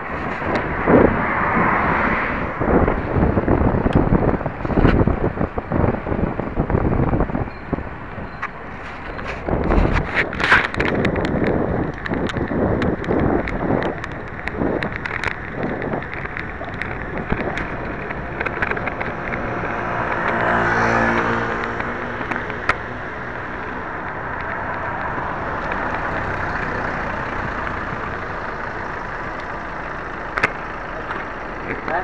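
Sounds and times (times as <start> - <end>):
motor vehicle passing: 0.0 - 7.3, 8.6 - 32.0
road and wind noise: 0.0 - 32.0
rattling clicks: 8.4 - 20.5.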